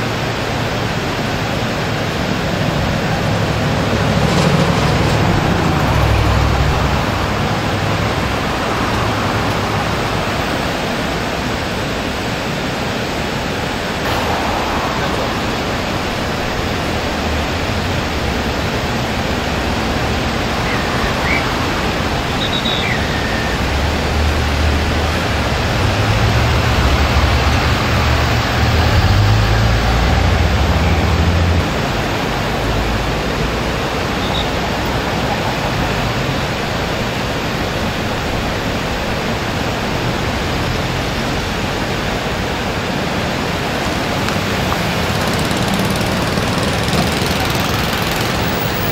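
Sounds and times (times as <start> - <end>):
floodwater rushing over weir: 0.0 - 48.9
deep rumble: 14.0 - 22.6.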